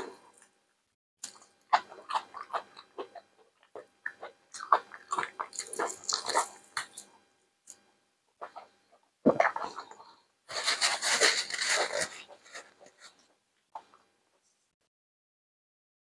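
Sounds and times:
close biting and chewing: 1.2s - 7.1s, 9.3s - 13.2s.

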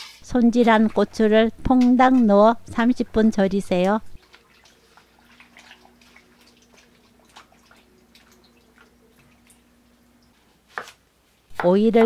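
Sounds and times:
brine splashing and dripping: 4.2s - 10.4s.

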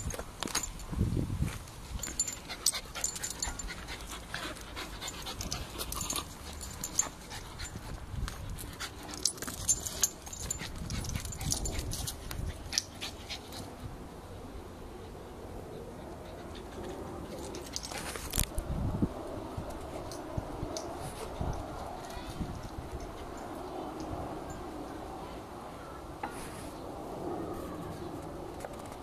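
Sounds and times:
dogs panting: 2.0s - 13.8s, 14.9s - 18.2s.

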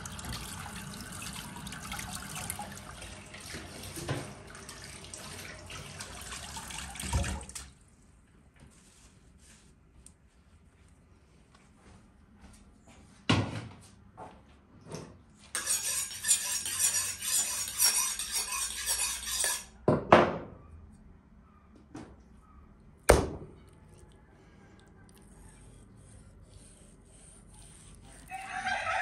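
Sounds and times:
knife scraping on sharpening steel: 15.6s - 19.8s.

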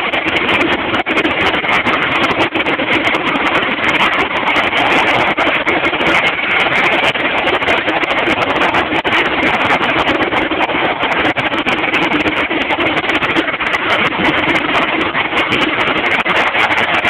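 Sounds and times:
jet engine roar: 0.0s - 17.0s.

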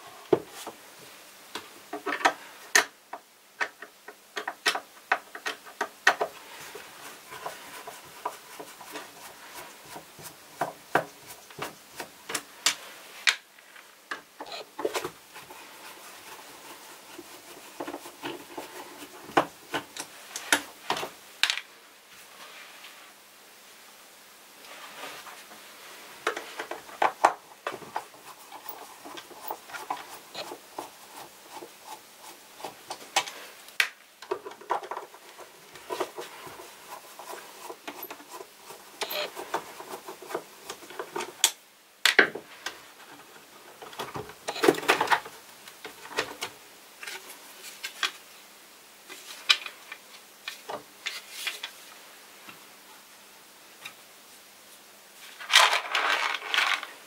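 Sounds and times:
screwdriver clicks and scrapes: 27.9s - 33.4s, 35.8s - 41.6s
small metal parts clattering: 55.4s - 57.0s.

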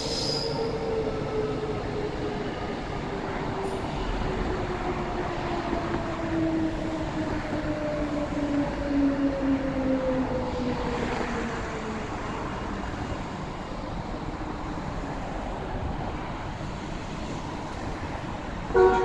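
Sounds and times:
train rumble: 0.0s - 19.0s.

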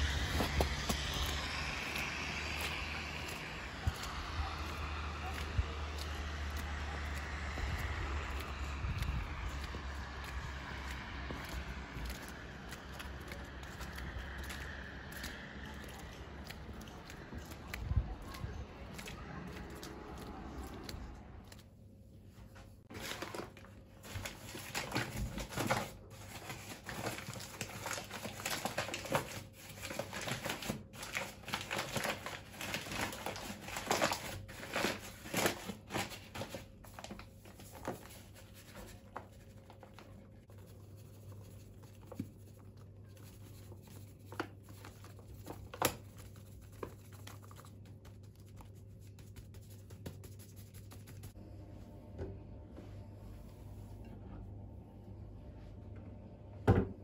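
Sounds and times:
paper bag crinkling and tearing: 0.0s - 6.4s, 22.9s - 40.2s.

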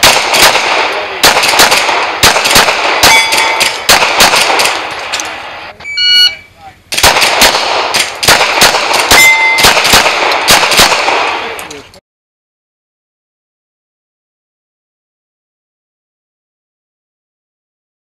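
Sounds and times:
pistol shots: 0.0s - 5.6s, 6.9s - 11.7s
brief ringing tone: 5.8s - 6.5s
shot timer beep: 5.8s - 6.5s.

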